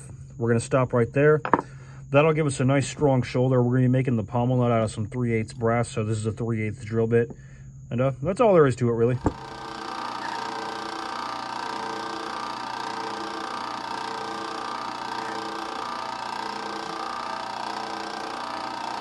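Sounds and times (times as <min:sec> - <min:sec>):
drill press drilling wood: 0:09.2 - 0:19.0.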